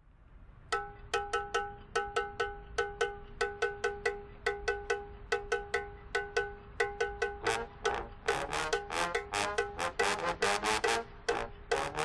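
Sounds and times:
bell-like metal percussion: 0.7 - 12.0.

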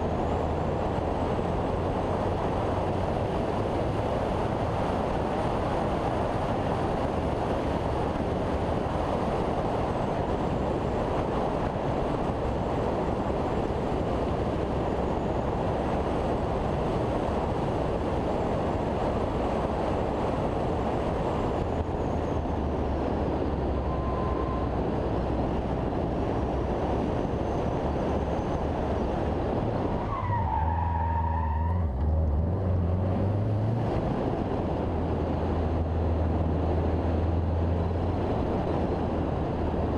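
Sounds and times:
car engine hum: 0.0 - 39.9
wind and road noise: 0.0 - 39.9
brief wavering squeal: 23.8 - 24.7.

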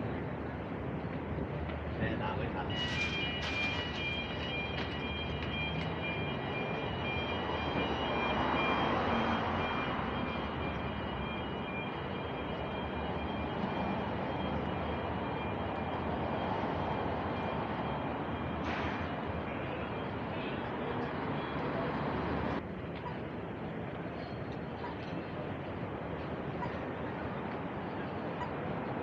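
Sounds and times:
passing vehicles rumble and hiss: 20.1 - 24.2.

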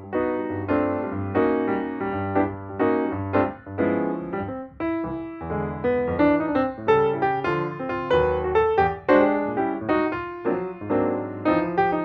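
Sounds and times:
piano music: 0.0 - 12.0.

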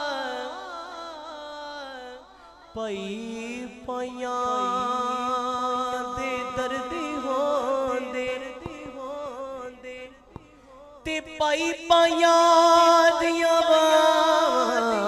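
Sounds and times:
man singing devotional verse: 0.0 - 15.0.

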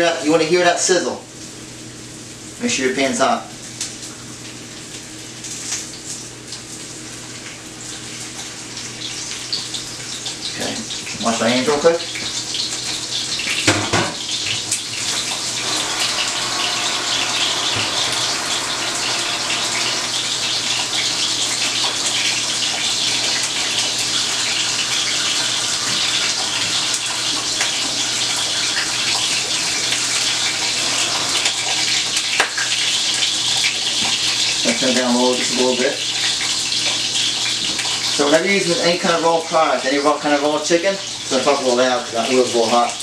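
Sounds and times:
chicken sizzling in oil: 1.4 - 43.0
small oil crackles: 3.7 - 11.2.

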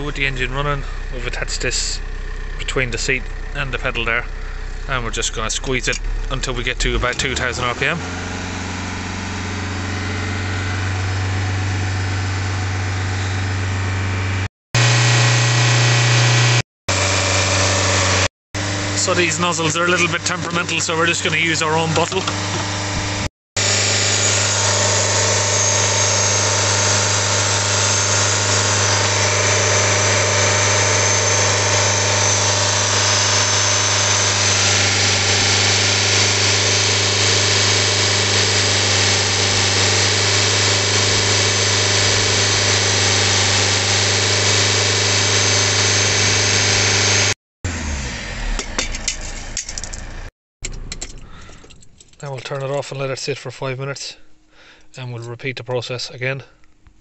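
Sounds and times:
diesel engine running at raised revs: 0.0 - 50.3
cleaner spraying into intake: 14.8 - 47.3
key rattling in ignition: 48.9 - 53.0.

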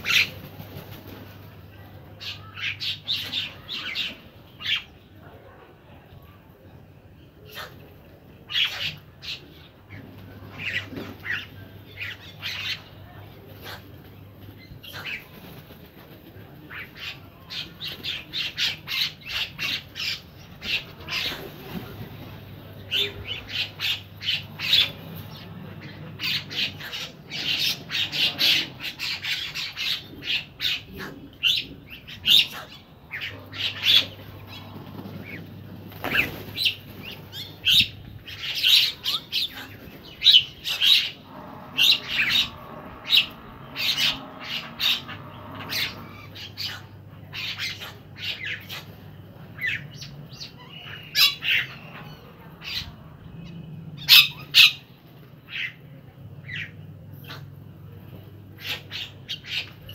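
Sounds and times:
flock of birds chirping and squawking: 0.0 - 59.9.

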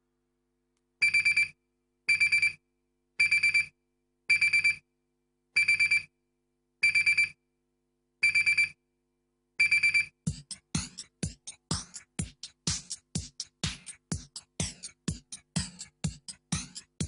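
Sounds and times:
digital alarm clock beeping: 1.0 - 2.6, 3.2 - 3.7, 4.3 - 4.8, 5.6 - 6.1, 6.8 - 7.4, 8.2 - 8.8, 9.6 - 10.2.

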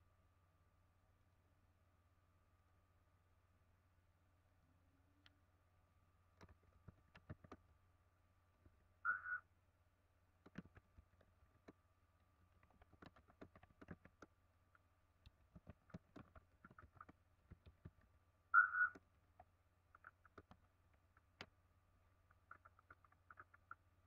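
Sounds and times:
low steady hum: 0.0 - 24.0
faint clicks and taps: 6.4 - 7.6, 10.4 - 11.8, 12.5 - 21.6
high-pitched chirp: 9.1 - 9.4, 18.6 - 18.9.

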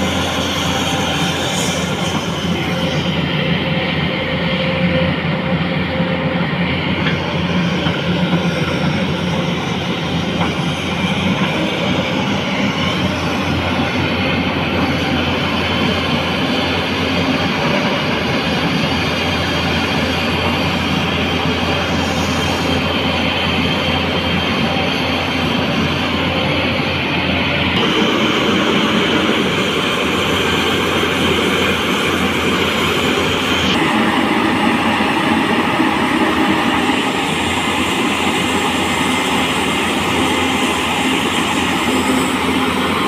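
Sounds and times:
excavator diesel engine: 0.0 - 43.0.

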